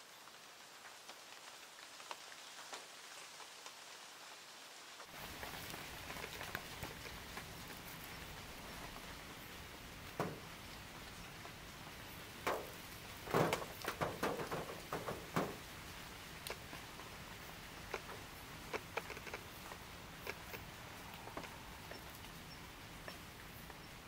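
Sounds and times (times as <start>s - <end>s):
faint steady hiss: 0.0s - 24.0s
light knocks and clicks: 10.1s - 10.5s, 12.4s - 15.7s.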